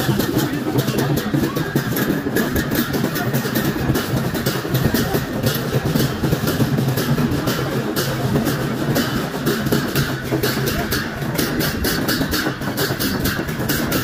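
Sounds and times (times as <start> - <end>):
barrel drum beat: 0.0 - 14.0
crowd din: 0.0 - 14.0
hand cymbals clashing: 0.0 - 14.0.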